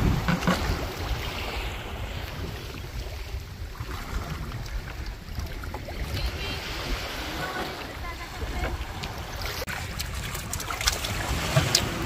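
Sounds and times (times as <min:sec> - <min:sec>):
small waves washing on shore: 0:00.0 - 0:12.0
wind buffeting microphone: 0:00.0 - 0:12.0.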